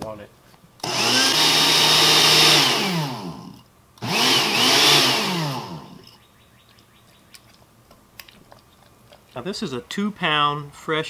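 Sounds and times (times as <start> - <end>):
blender running: 0.8 - 6.1.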